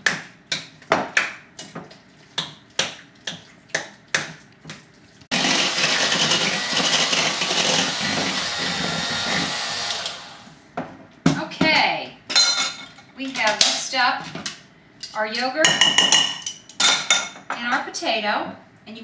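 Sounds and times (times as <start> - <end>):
electric hand mixer running: 5.3 - 10.5.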